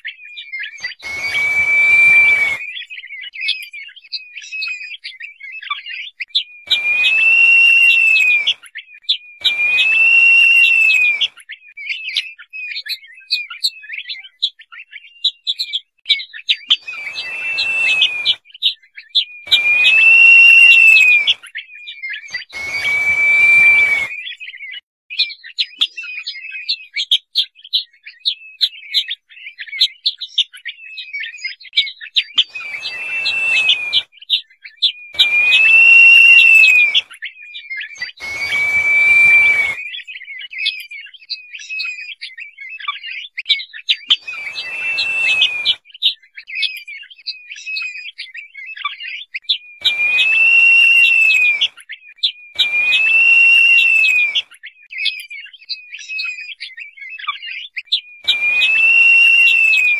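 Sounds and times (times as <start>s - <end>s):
partridge drawn-out whistles: 0.6s - 3.0s, 6.6s - 12.2s, 16.7s - 18.4s, 19.2s - 21.5s, 22.1s - 24.8s, 32.4s - 34.3s, 35.0s - 37.2s, 37.9s - 40.2s, 44.1s - 45.9s, 49.7s - 51.8s, 52.5s - 54.6s, 58.0s - 59.9s.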